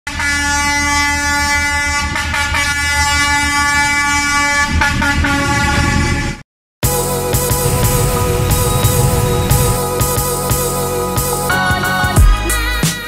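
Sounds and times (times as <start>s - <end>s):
locomotive air horn: 0.1s - 11.0s
low rumble: 7.2s - 11.0s.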